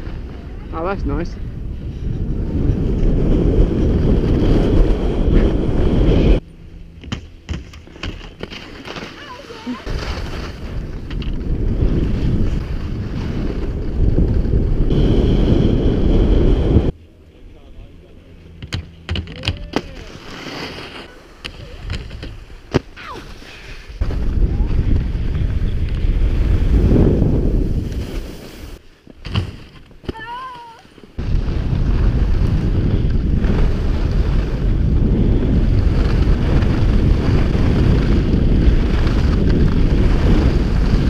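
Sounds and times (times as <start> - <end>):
skis scraping over snow: 0.0 - 6.4, 7.5 - 17.4, 19.8 - 41.0
wind rushing over microphone: 0.0 - 7.6, 9.6 - 18.7, 23.6 - 28.8, 31.2 - 41.0.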